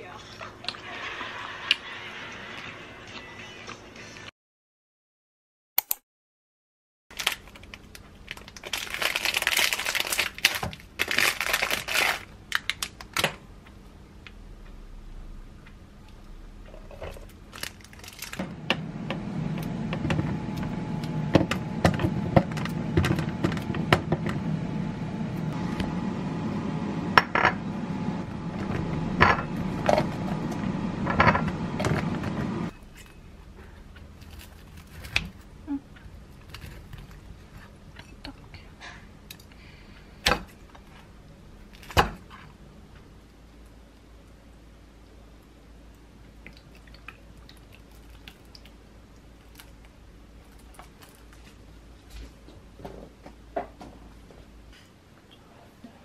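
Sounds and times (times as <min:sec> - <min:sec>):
plastic wrapping crinkling: 0:07.1 - 0:13.2, 0:17.2 - 0:18.4
kitchen appliance humming: 0:18.1 - 0:32.8.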